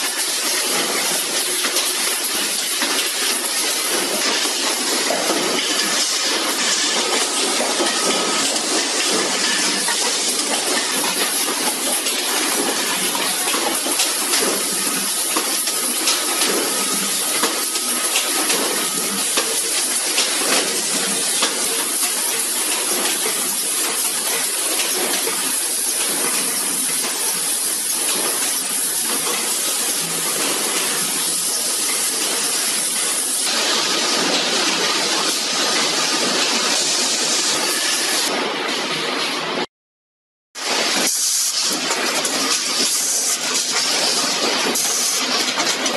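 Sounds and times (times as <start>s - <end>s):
clicks and clanks of pails: 0.0s - 39.4s, 40.6s - 45.9s.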